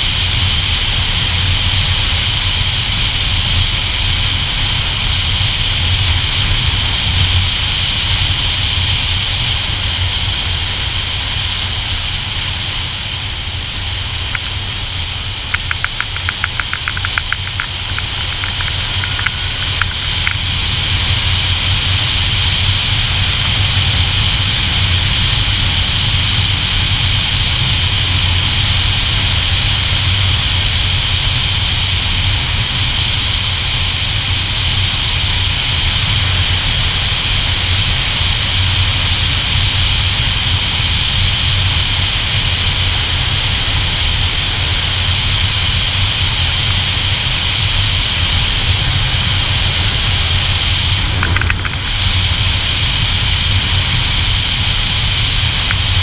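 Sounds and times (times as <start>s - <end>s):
motorcycle engine running: 0.0s - 56.0s
quick ticks: 14.3s - 14.6s, 15.5s - 20.5s, 51.1s - 51.9s.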